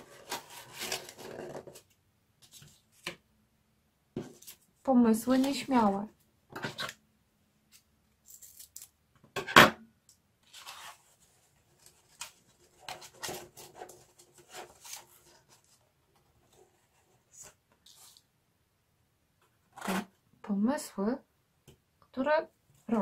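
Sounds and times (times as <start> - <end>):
cardboard scraping and rustling: 0.0 - 3.1, 10.4 - 15.8.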